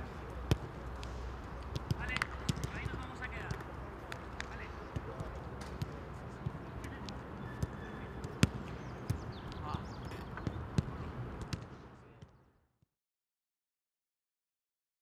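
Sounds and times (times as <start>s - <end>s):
distant players' voices: 0.0s - 12.6s.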